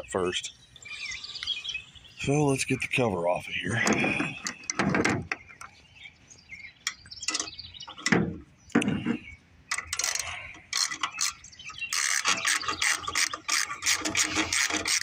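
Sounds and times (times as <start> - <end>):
metal clunks: 3.8 - 5.5, 7.3 - 10.2
ratchet wrench clicking rapidly: 10.8 - 15.0.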